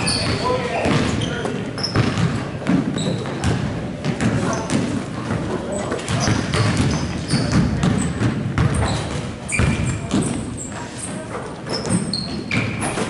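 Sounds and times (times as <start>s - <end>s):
sneakers squeaking: 0.0s - 13.0s
basketball thudding: 2.0s - 5.4s, 6.1s - 8.9s.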